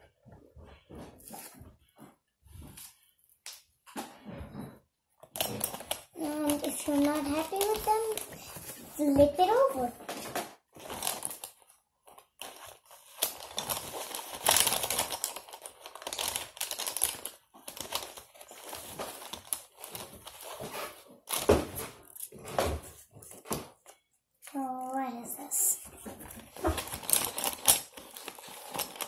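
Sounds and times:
paper cards rustling and scraping: 5.3s - 24.0s, 25.9s - 29.0s.

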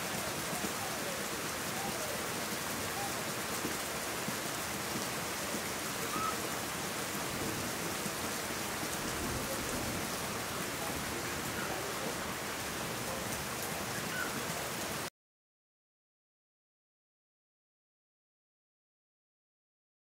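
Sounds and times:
steady rain patter: 0.0s - 15.1s.

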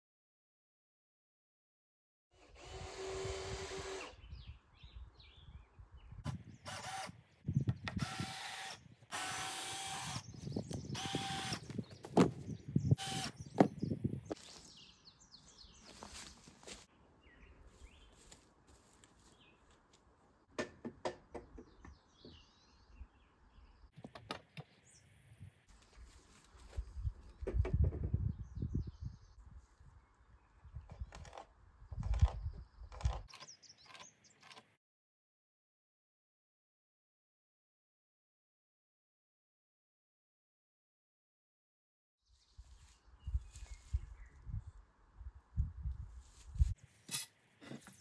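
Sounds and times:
power drill driving screws: 2.4s - 4.2s, 6.6s - 7.2s, 7.9s - 10.2s, 10.9s - 11.8s, 13.0s - 13.4s
wood knocking and clicking: 20.5s - 22.4s.

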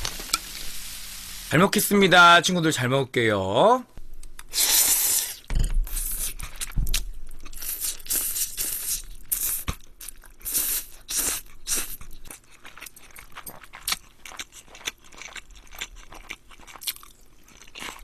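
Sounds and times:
slurping noodles: 4.5s - 6.5s
wet chewing: 5.9s - 18.0s.

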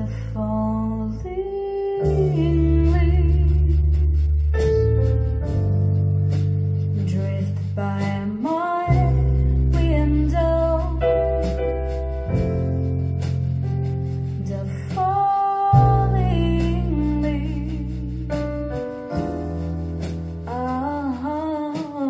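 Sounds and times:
woman singing with vibrato: 0.0s - 4.4s, 7.0s - 11.2s, 14.4s - 18.6s, 20.5s - 22.0s
sustained low bass notes: 0.0s - 21.8s.

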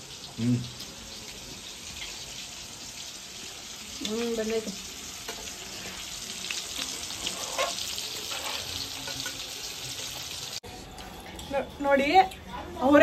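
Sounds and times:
chicken sizzling in pan: 0.0s - 10.6s
metal spatula scraping: 6.8s - 9.6s.

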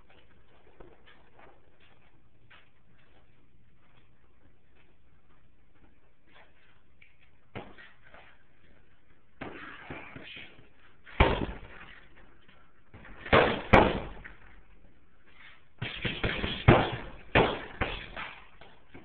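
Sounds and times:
punches thudding on heavy bag: 11.1s - 11.9s, 13.0s - 14.4s, 15.8s - 18.5s.

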